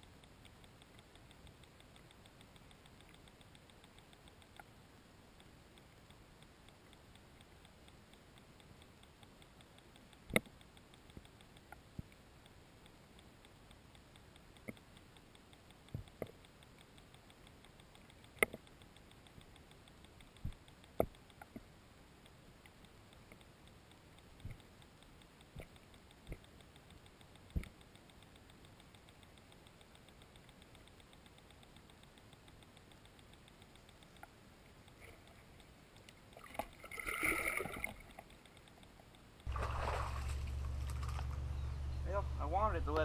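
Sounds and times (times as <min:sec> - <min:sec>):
faint fast ticking: 0:00.0 - 0:43.0
quiet underwater hiss: 0:00.0 - 0:43.0.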